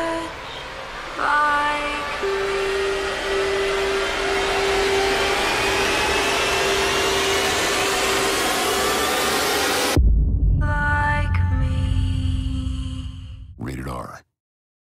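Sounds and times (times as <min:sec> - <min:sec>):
dense rushing noise: 0:00.0 - 0:10.0
held drone note: 0:00.0 - 0:10.0
thin whine rising in pitch: 0:00.0 - 0:10.0.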